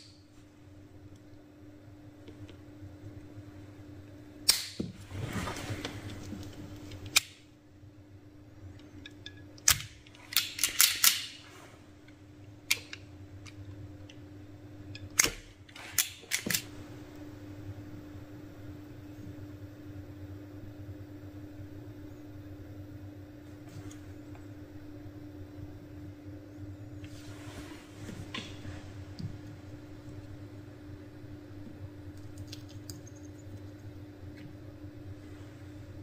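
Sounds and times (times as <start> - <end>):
steady low hum: 0.0 - 36.0
wire cutters snapping: 4.5 - 4.8.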